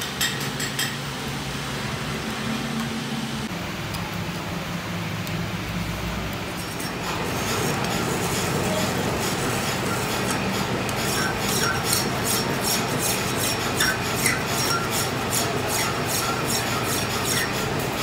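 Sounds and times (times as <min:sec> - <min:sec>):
hand file rasping on metal: 0:06.6 - 0:18.0
lathe running: 0:06.6 - 0:18.0.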